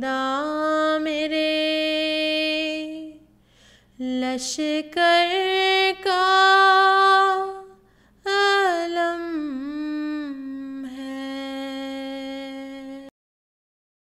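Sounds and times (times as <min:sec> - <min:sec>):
person singing wordlessly: 0:04.0 - 0:13.1.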